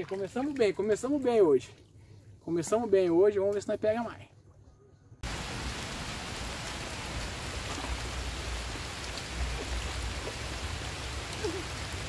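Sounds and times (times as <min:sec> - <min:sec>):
heavy rain on water: 0:05.2 - 0:12.0.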